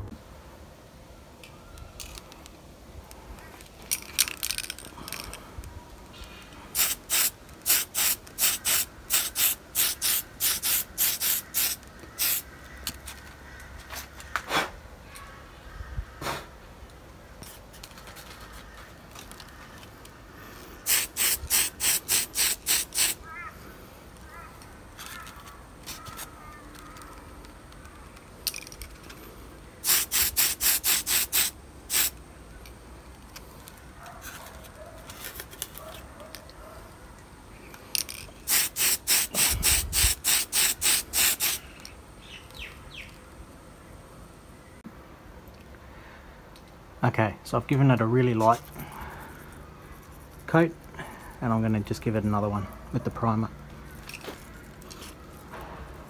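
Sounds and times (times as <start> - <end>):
aerosol spray can hissing: 6.7 - 12.5, 20.8 - 23.2, 29.8 - 32.2, 38.4 - 41.6.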